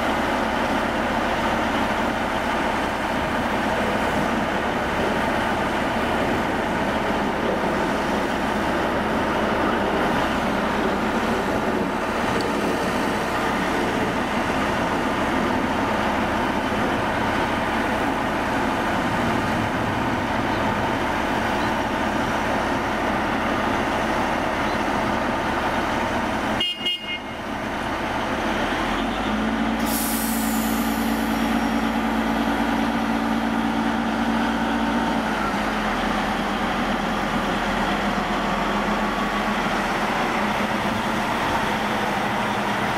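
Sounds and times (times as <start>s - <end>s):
diesel engine running: 0.0s - 42.9s
short hiss: 29.8s - 31.1s.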